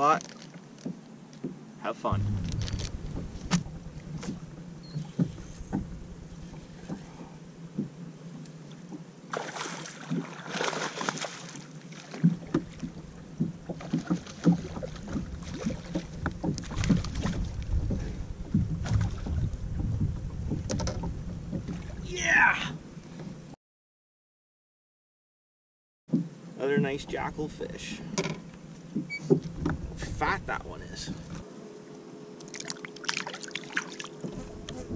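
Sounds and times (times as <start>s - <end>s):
waves lapping against boat hull: 0.2s - 22.1s, 28.1s - 31.5s, 32.4s - 34.9s
rush of noise: 2.1s - 4.6s
wind on microphone: 2.1s - 7.3s, 15.1s - 22.1s.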